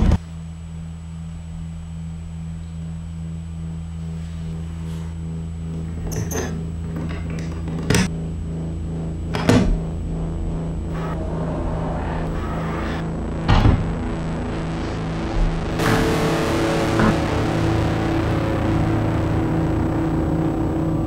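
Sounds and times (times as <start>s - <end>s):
low steady drone: 0.0s - 21.0s.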